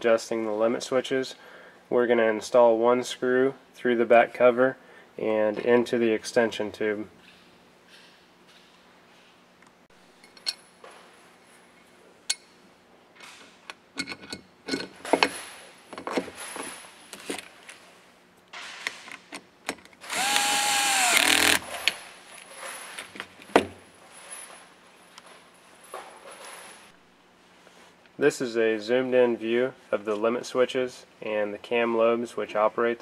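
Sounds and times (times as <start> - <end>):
cordless electric screwdriver running: 20.0 - 21.8.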